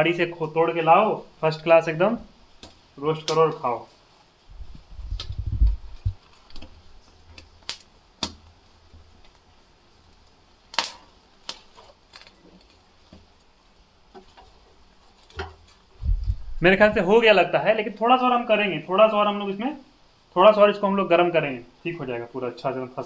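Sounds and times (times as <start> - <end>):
corn kernels popping: 10.7 - 13.5
low handling rumble: 16.0 - 17.2.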